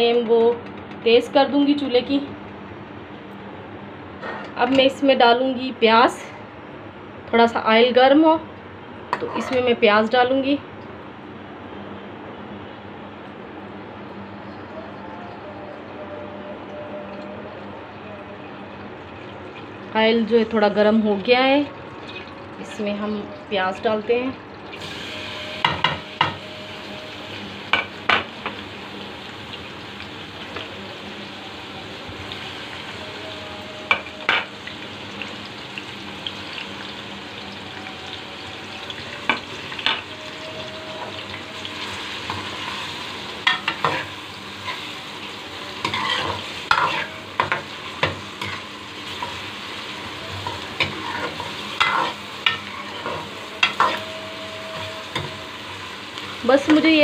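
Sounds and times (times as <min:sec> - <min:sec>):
onions sizzling in hot oil: 0:19.6 - 0:57.0
metal ladle scraping a pan: 0:45.8 - 0:49.4, 0:50.4 - 0:55.6.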